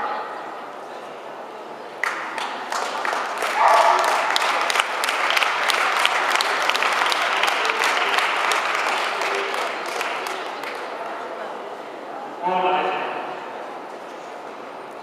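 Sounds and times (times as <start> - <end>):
crowd applauding: 2.0 - 11.3.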